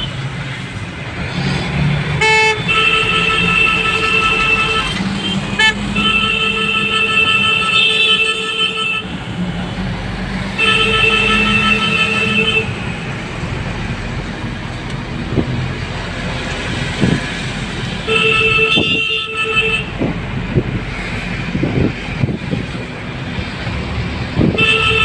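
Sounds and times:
car road and engine noise: 0.0 - 25.0
car horn blasts: 2.2 - 9.1, 10.6 - 12.8, 18.0 - 20.0, 24.4 - 25.0.

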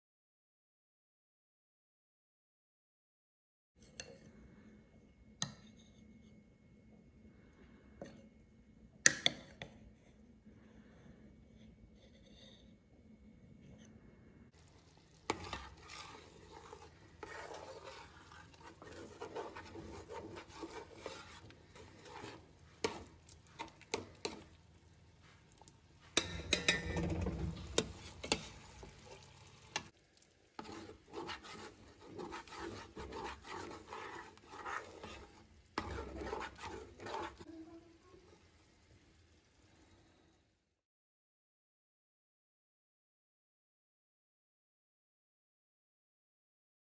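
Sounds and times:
spoon stirring thick stew: 14.6 - 37.5.

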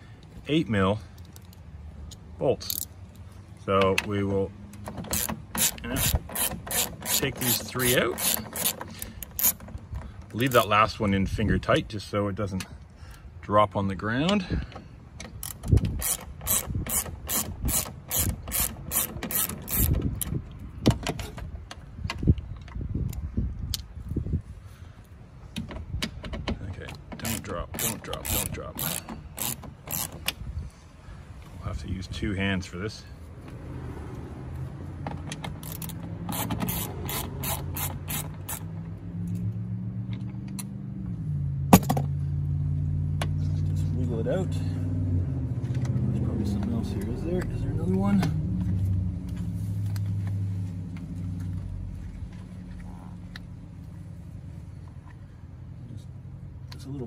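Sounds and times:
hand ratchet clicking: 5.0 - 9.8, 15.3 - 20.3, 27.2 - 30.4, 35.3 - 38.7.

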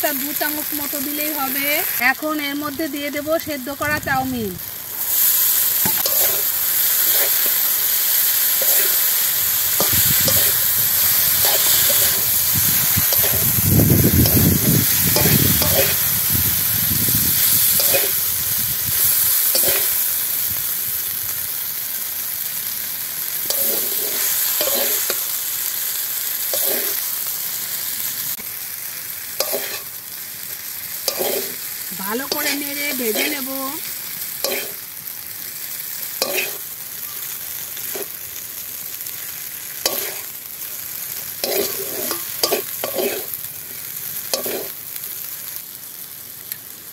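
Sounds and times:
noodles sizzling in hot oil: 0.0 - 46.9
metal spatula scraping a pan: 5.2 - 7.6, 9.7 - 16.1, 17.4 - 18.3, 23.5 - 25.2, 26.5 - 27.0, 29.4 - 29.9, 31.0 - 31.6, 34.5 - 34.8, 36.2 - 36.6, 39.9 - 40.3, 41.4 - 43.3, 44.4 - 44.8.

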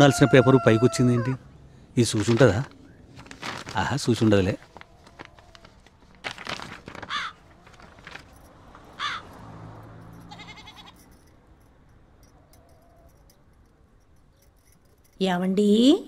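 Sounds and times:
crows cawing: 7.0 - 8.0, 8.9 - 9.4, 10.3 - 11.0
animal bleating: 10.3 - 11.0.

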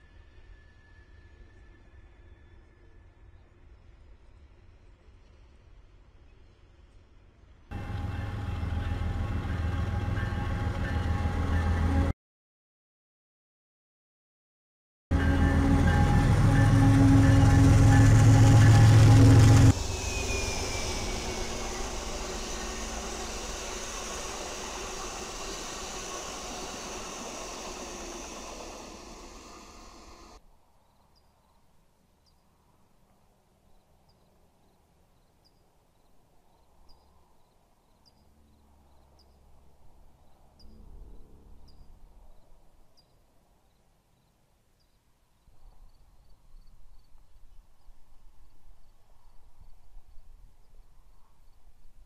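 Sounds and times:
train wheels on rail: 4.4 - 12.1, 15.2 - 30.4.

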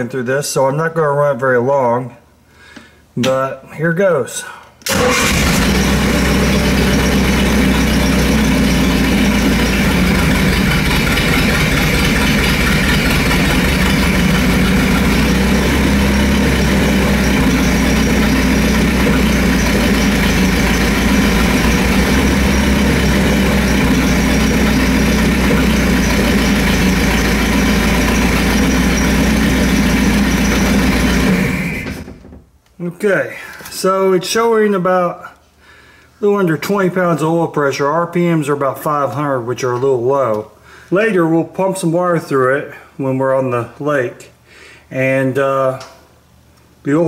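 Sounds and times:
boat engine idling: 4.9 - 32.2.

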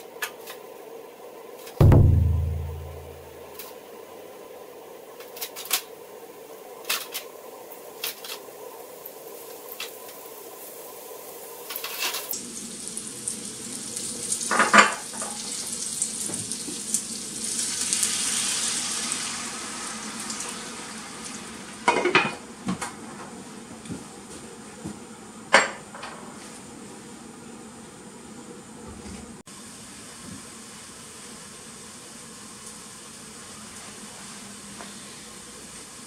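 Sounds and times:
hot oil sizzling: 5.4 - 22.6, 29.6 - 36.0
water poured into hot pan: 15.1 - 21.8.

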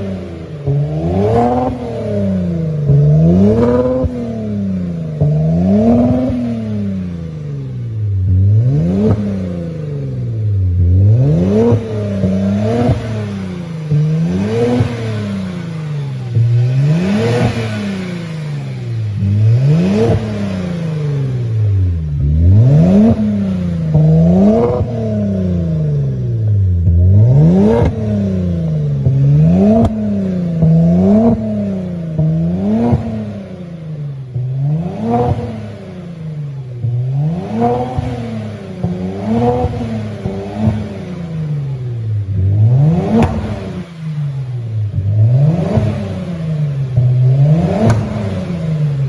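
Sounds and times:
car engine revving: 0.0 - 49.0
exhaust cracks: 8.2 - 33.4, 36.5 - 49.0.

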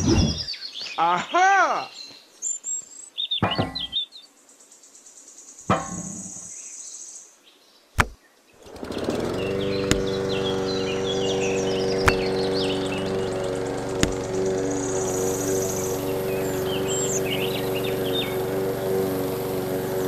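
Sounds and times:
sharp clicks: 8.0 - 8.2, 12.0 - 12.5, 13.9 - 14.6
small electric motor humming: 8.0 - 20.0.

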